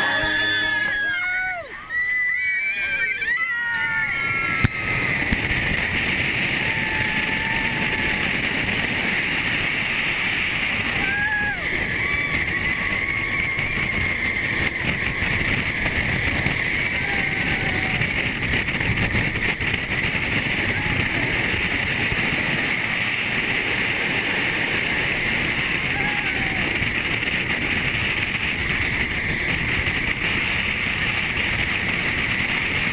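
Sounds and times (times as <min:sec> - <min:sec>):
roller coaster train on track: 0:00.0 - 0:32.9
wind rush on microphone: 0:03.8 - 0:32.9.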